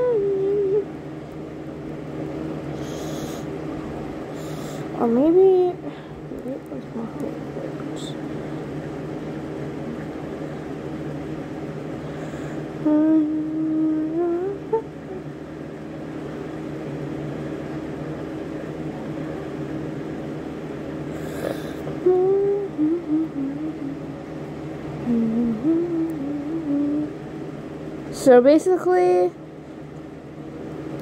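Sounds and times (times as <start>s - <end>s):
person humming a rising note: 0.0s - 0.9s, 12.8s - 15.4s, 21.4s - 24.1s, 25.0s - 27.2s
electric fan humming: 0.0s - 31.0s.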